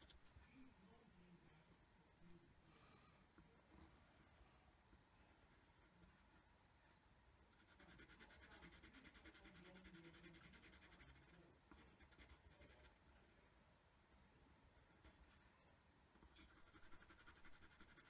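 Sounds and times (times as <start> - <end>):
pencil scratching on paper: 7.5 - 13.0, 16.4 - 18.0.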